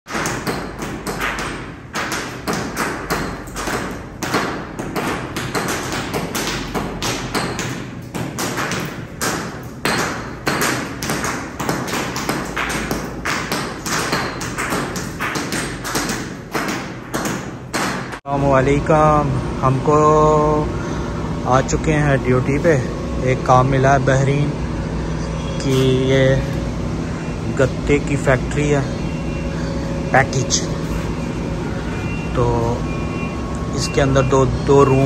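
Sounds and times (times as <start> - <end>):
hammers and chisels on concrete: 0.1 - 18.2.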